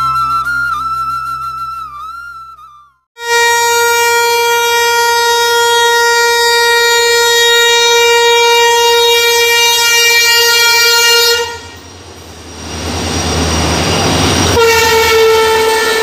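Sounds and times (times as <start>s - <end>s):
locomotive air horn: 3.2s - 11.8s, 14.5s - 16.0s
passing train rumble: 3.5s - 16.0s.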